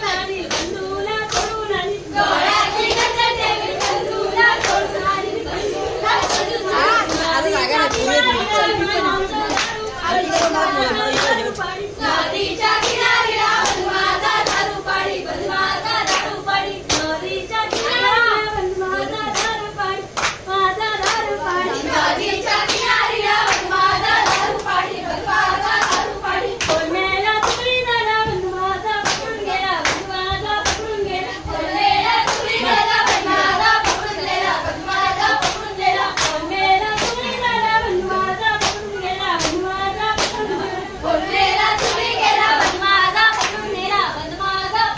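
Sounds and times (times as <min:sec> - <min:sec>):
group singing folk song: 0:00.0 - 0:44.9
hand claps: 0:00.4 - 0:01.6, 0:02.8 - 0:04.9, 0:06.2 - 0:08.4, 0:09.4 - 0:11.7, 0:12.7 - 0:14.8, 0:16.0 - 0:18.0, 0:19.2 - 0:21.3, 0:22.6 - 0:24.8, 0:25.6 - 0:31.0, 0:32.2 - 0:34.2, 0:35.2 - 0:37.4, 0:38.4 - 0:40.5, 0:41.7 - 0:43.6.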